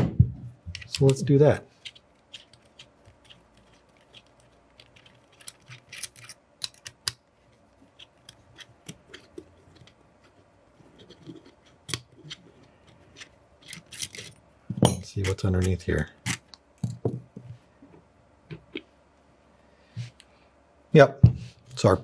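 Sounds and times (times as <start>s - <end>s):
allen key clicking and scraping metal: 0.7s - 7.2s, 7.8s - 14.4s.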